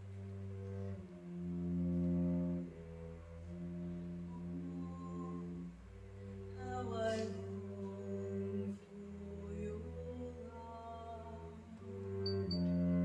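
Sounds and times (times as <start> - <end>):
bowed double bass: 0.0 - 13.0
woman singing long-held notes: 4.3 - 5.8, 6.4 - 13.0.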